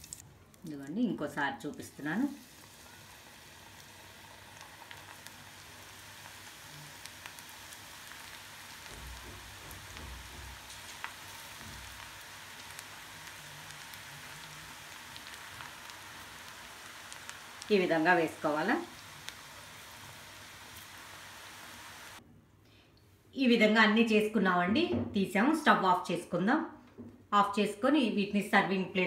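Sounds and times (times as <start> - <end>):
batter sizzling in hot oil: 0.0 - 0.2, 1.3 - 22.2.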